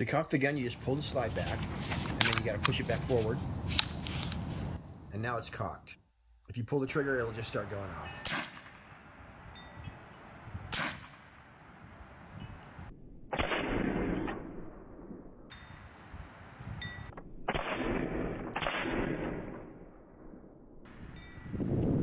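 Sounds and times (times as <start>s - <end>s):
wind gusts on microphone: 9.5s - 11.0s, 15.6s - 17.1s, 20.9s - 22.0s.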